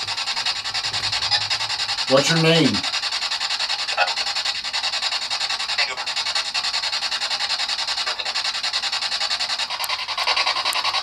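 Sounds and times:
radio sweeping through stations: 0:02.1 - 0:02.9, 0:05.7 - 0:06.2.

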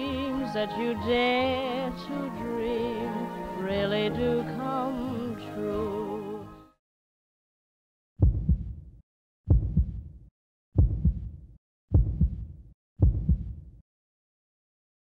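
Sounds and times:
deep double thumps: 0:08.2 - 0:13.8.

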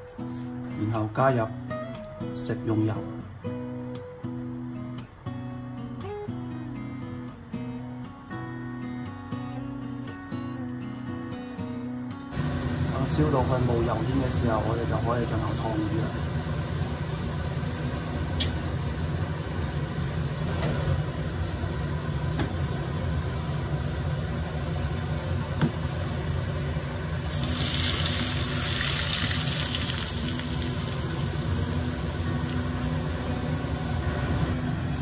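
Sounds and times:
hot oil sizzling: 0:12.3 - 0:22.1, 0:26.0 - 0:35.0.

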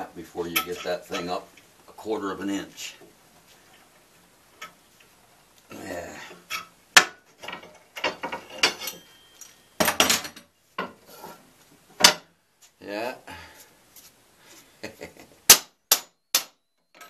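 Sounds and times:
metal clamps and tools clicking: 0:07.4 - 0:11.0.

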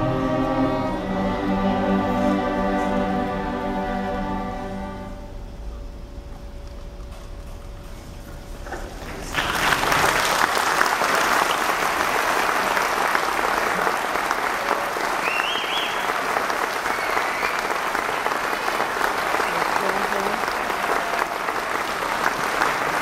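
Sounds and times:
audience applause: 0:08.9 - 0:23.0.

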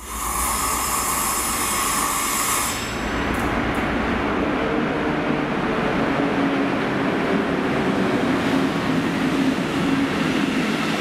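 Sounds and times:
high-pitched hissing tone: 0:00.0 - 0:03.0
diesel locomotive engine rumble: 0:02.8 - 0:11.0.

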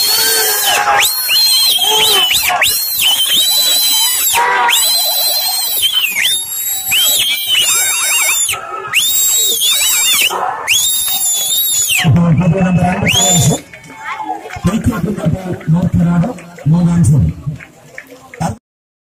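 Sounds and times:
shrill whistle blowing: 0:00.0 - 0:12.1, 0:12.7 - 0:13.6
crowd noise: 0:00.0 - 0:18.6.

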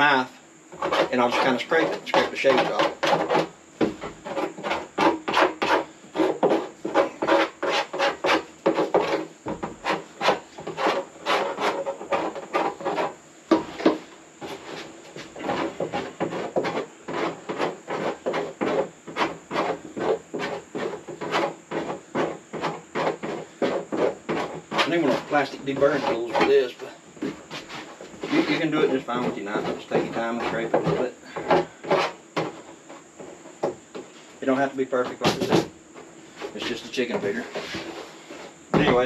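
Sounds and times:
knife scraping plastic: 0:00.7 - 0:13.2, 0:15.4 - 0:33.4.

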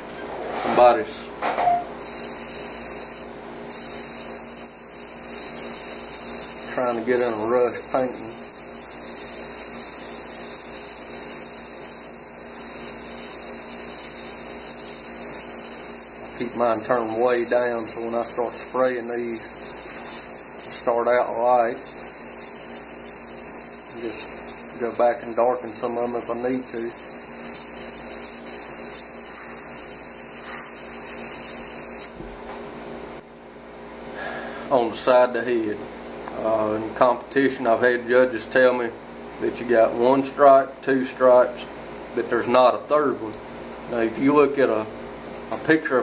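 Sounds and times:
steady hum: 0:00.0 - 0:38.1
airbrush hissing: 0:02.0 - 0:32.2.

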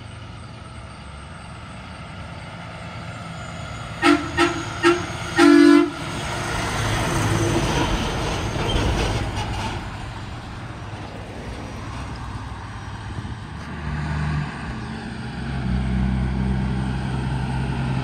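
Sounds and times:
diesel truck passing: 0:00.0 - 0:18.0
truck air horn: 0:04.0 - 0:06.2.

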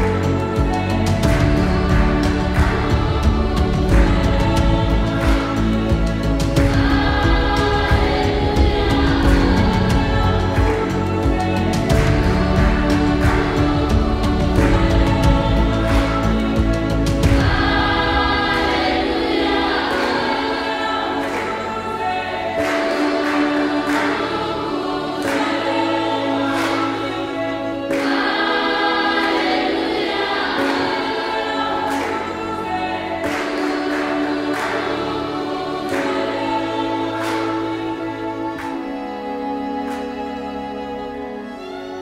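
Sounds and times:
slow regular beat: 0:00.0 - 0:20.8
choir singing sustained chords: 0:00.0 - 0:42.0.

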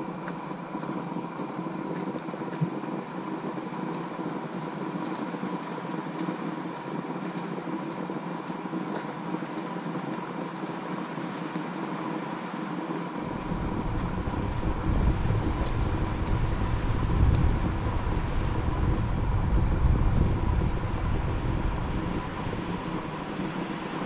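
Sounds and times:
faint hum: 0:00.0 - 0:24.0
outdoor hiss: 0:00.0 - 0:24.0
wind rumble on microphone: 0:12.8 - 0:24.0.

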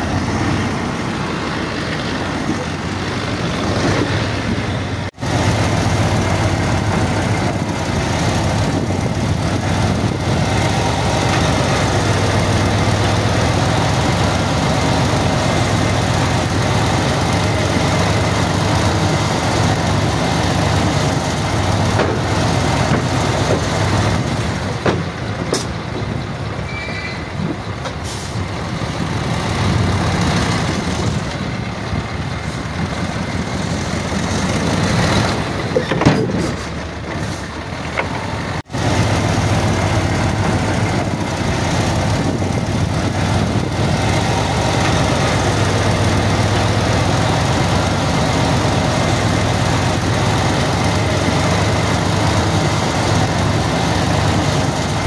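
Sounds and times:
heavy diesel engine running: 0:00.0 - 0:55.0
knocks and clanks: 0:21.6 - 0:26.5, 0:32.9 - 0:38.7.

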